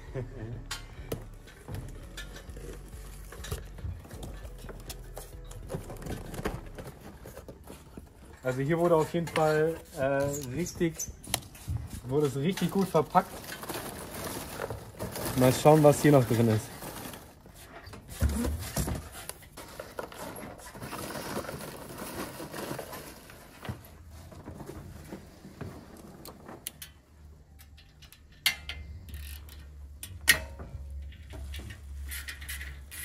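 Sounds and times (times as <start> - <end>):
cardboard packing filler rustling: 1.9 - 26.6.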